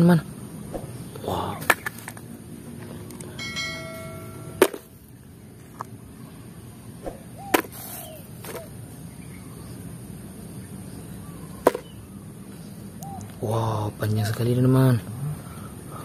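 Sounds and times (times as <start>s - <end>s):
bell-like notification ding: 3.4s - 4.6s.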